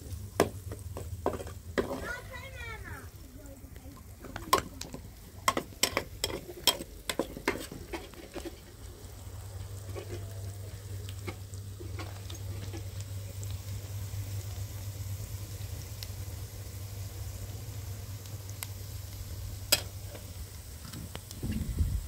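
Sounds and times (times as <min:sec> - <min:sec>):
food sizzling in oil: 0:00.0 - 0:22.0
low steady hum: 0:00.0 - 0:22.0
metal spoon scraping a pan: 0:05.5 - 0:08.8, 0:09.8 - 0:10.3.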